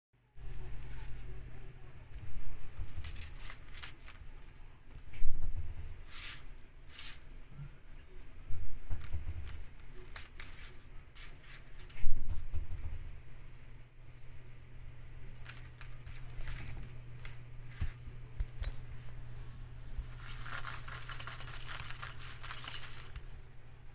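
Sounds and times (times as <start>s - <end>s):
cat toy ball jingling: 2.6s - 5.5s, 8.8s - 13.0s, 15.2s - 17.6s, 20.1s - 23.3s.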